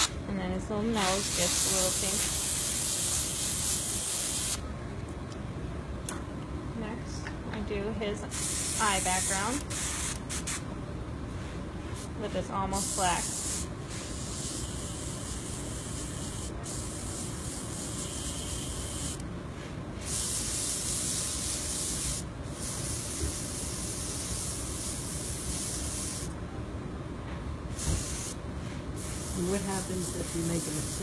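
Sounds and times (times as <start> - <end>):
airbrush spraying hiss: 1.0 - 4.6, 8.3 - 10.6, 12.7 - 19.2, 20.0 - 26.3, 27.7 - 28.4, 29.0 - 31.0.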